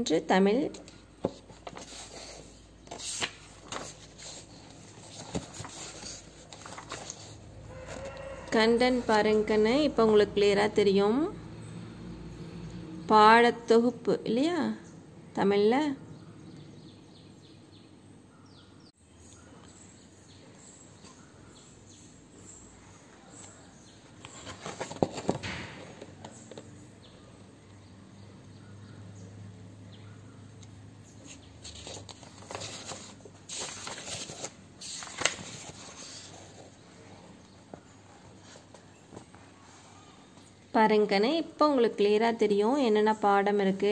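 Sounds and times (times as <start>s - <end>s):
book pages rustling: 0.7s - 9.4s, 23.2s - 26.8s, 31.2s - 40.4s.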